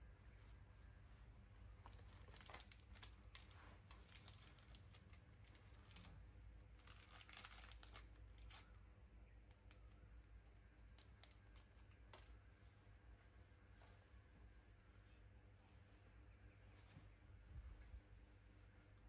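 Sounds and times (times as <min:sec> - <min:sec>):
plastic wrapper crinkling: 0:01.9 - 0:08.7.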